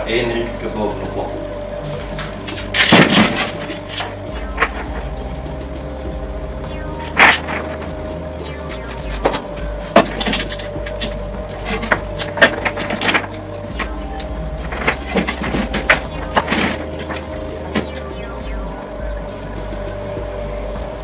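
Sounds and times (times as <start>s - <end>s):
chain links clinking on metal: 2.5s - 5.0s, 10.0s - 18.1s.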